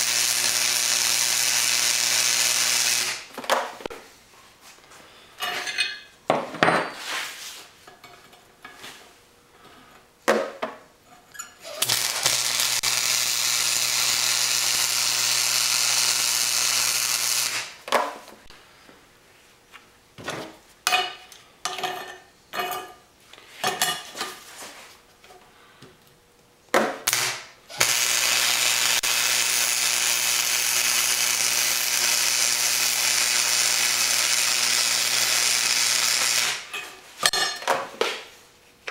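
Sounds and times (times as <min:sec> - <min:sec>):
welding arc hissing and humming: 0:00.0 - 0:03.4, 0:11.6 - 0:17.9, 0:27.1 - 0:36.7.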